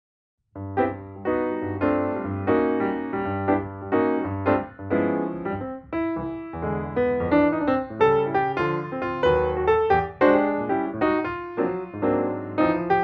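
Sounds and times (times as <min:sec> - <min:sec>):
piano chords over bass line: 0:00.6 - 0:13.0.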